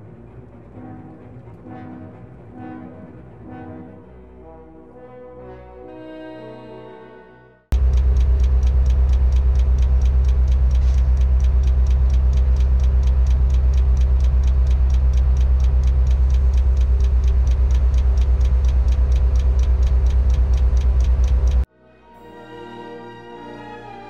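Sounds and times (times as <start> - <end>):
low engine hum: 7.7 - 21.7
rapid ticking: 7.7 - 21.7.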